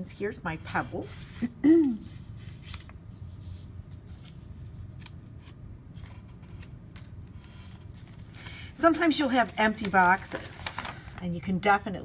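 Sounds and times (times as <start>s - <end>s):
steady low hum: 0.0s - 12.0s
paper rustling and tapping: 8.0s - 11.3s.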